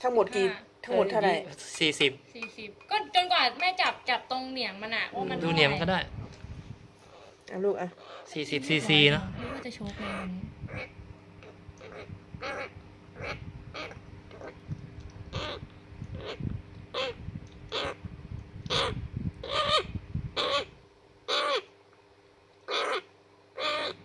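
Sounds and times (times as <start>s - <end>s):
parrot chick begging calls: 9.0s - 14.6s, 15.3s - 18.0s, 18.6s - 21.7s, 22.7s - 24.0s.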